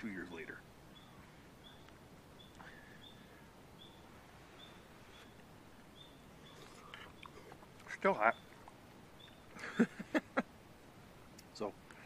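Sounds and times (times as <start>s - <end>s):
faint high chirp: 0.9s - 7.4s, 8.2s - 9.5s.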